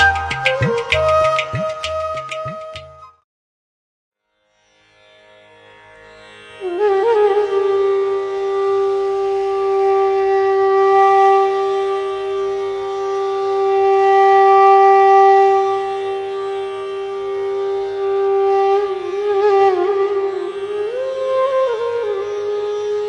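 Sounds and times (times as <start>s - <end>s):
wind instrument holding a note: 0.0s - 3.0s.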